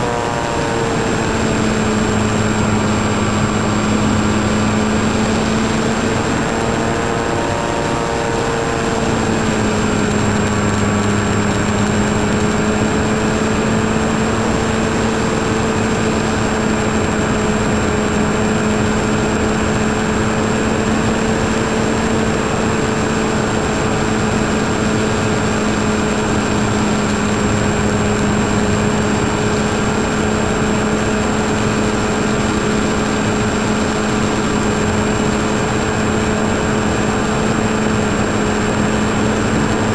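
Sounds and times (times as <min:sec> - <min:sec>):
propeller aircraft engine drone: 0:00.0 - 0:39.9
rushing wind noise: 0:00.0 - 0:39.9.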